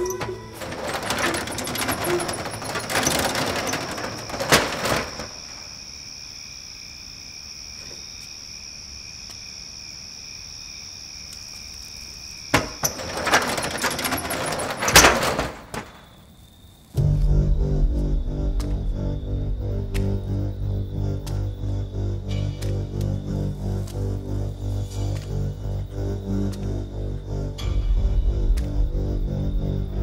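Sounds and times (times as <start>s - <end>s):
metal roller door rattling: 0.0s - 5.8s, 12.5s - 16.2s
crickets trilling: 0.0s - 30.0s.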